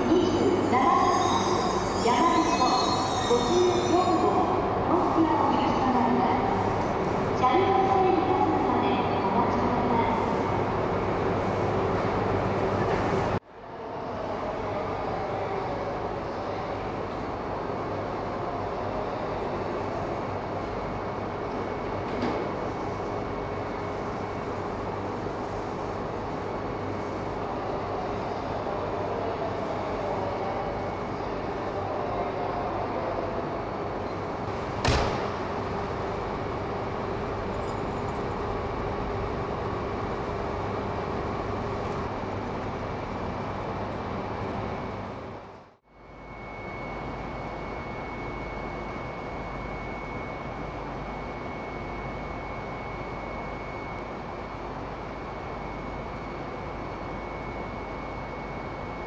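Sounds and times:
train humming at platform: 0:00.0 - 0:59.0
sharp knock: 0:34.8 - 0:35.3.

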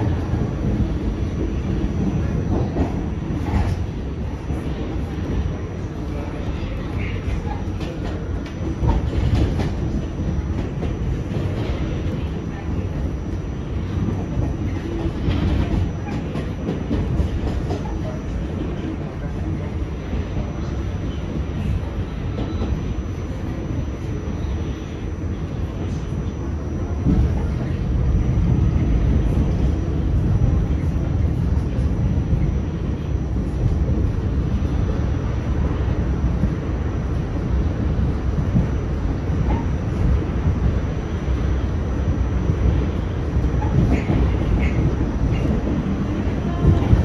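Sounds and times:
subway car wheels rumbling: 0:00.0 - 0:47.0.

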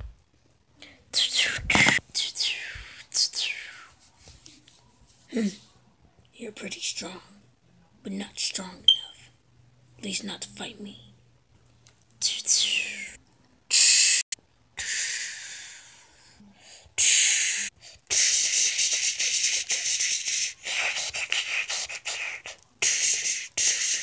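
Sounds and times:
mouth hissing and whooshing: 0:13.0 - 0:15.7, 0:17.0 - 0:24.0.

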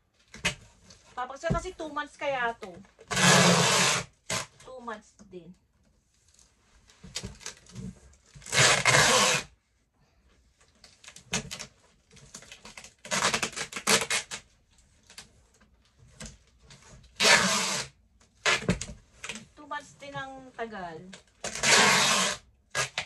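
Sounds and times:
packing tape tearing: 0:03.0 - 0:04.6, 0:07.2 - 0:09.5, 0:10.8 - 0:15.3, 0:17.1 - 0:19.5, 0:21.1 - 0:23.0.

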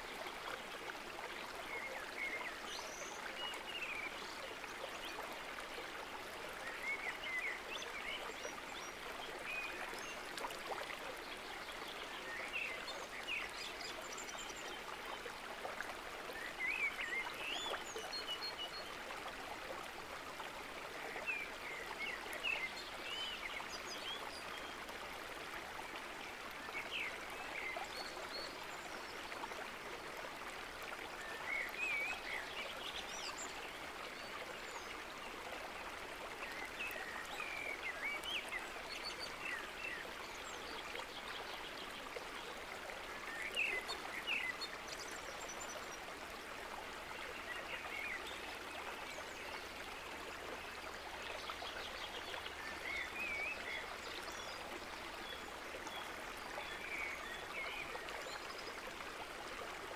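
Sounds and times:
stream running: 0:00.0 - 0:59.9.

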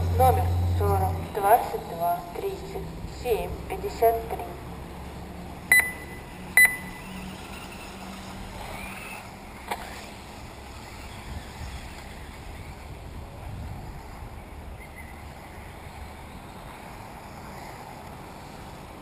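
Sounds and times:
whine of toy cars: 0:05.0 - 0:19.0
short electronic beeps: 0:05.7 - 0:07.0.

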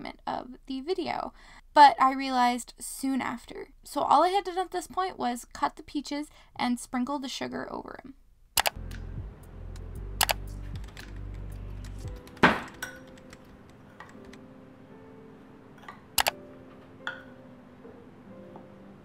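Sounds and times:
soft background music: 0:08.6 - 0:19.0
low hum: 0:08.7 - 0:13.9.

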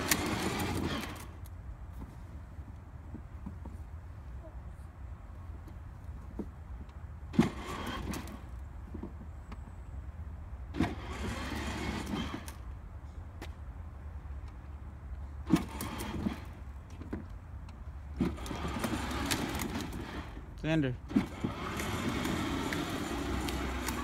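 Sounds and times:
electric motor whir: 0:00.0 - 0:01.4, 0:10.8 - 0:12.6, 0:18.2 - 0:20.4, 0:21.1 - 0:24.0
plastic wheels rolling on concrete: 0:00.0 - 0:03.8, 0:07.3 - 0:09.3, 0:10.7 - 0:12.7, 0:15.4 - 0:17.4, 0:18.1 - 0:20.5, 0:21.1 - 0:24.0.

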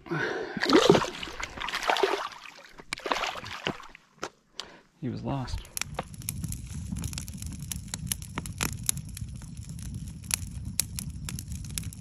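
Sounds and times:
campfire crackling and popping: 0:00.6 - 0:12.0
low rumble of flames: 0:04.6 - 0:12.0.

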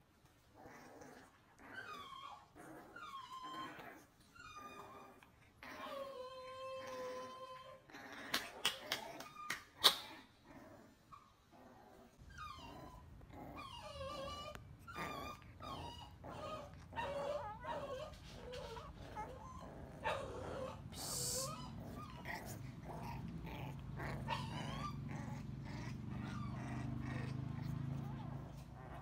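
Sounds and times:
puppies yipping and growling: 0:00.4 - 0:29.0
low steady hum: 0:10.4 - 0:29.0.

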